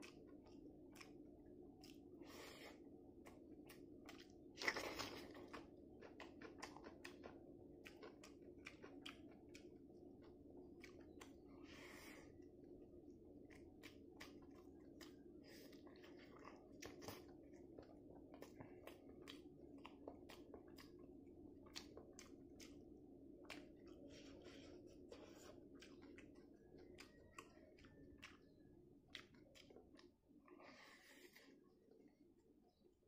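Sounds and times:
close-up chewing: 0:00.0 - 0:32.8
faint steady hum: 0:00.0 - 0:33.0
wet mouth clicks and smacks: 0:29.1 - 0:30.1.

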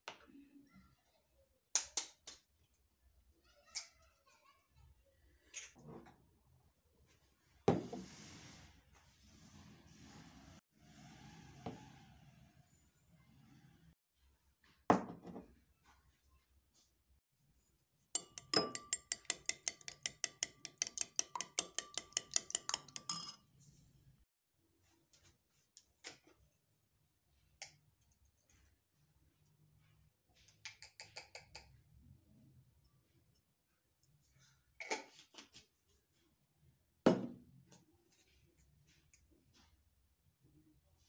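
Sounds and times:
utensil clinking against kitchenware: 0:18.2 - 0:23.5.

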